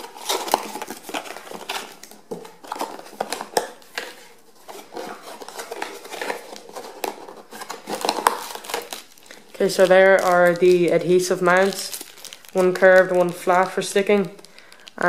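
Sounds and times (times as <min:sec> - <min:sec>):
cardboard scraping: 0:00.0 - 0:09.0.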